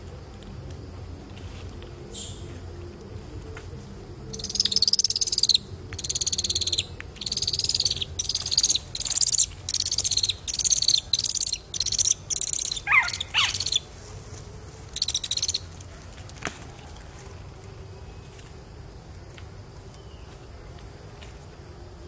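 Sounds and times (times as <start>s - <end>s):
owl chick rasping calls: 4.3s - 13.9s, 14.9s - 15.7s.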